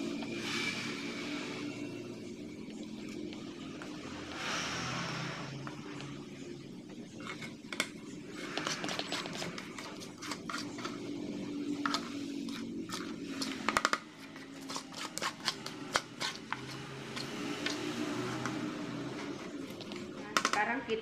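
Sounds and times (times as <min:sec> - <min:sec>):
low steady hum: 0:00.0 - 0:21.0
spatula scraping metal bowl: 0:07.1 - 0:20.1.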